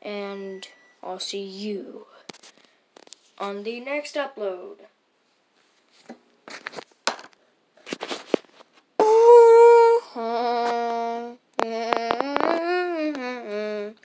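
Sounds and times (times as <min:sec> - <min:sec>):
person singing long notes: 0:09.0 - 0:14.0.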